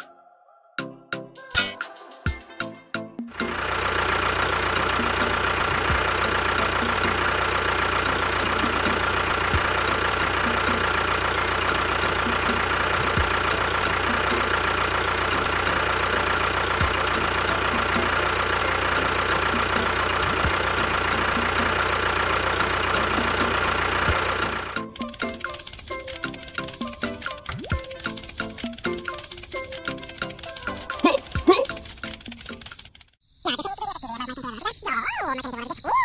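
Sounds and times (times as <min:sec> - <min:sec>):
rapid faint ticking: 0:03.5 - 0:33.2
small motor whining: 0:03.5 - 0:33.2.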